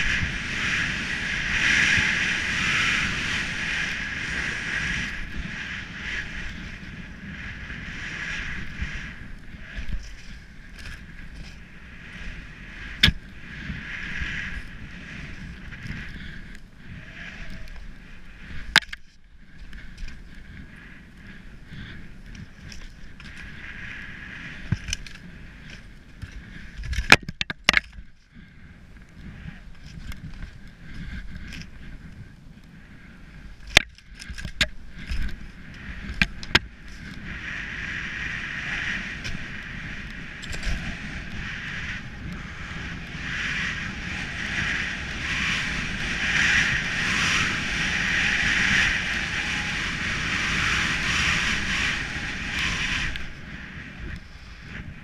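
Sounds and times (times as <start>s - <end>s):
skis hissing through snow: 0.0s - 16.4s, 23.4s - 25.7s, 35.6s - 55.0s
sharp knocks and clicks: 27.0s - 28.0s.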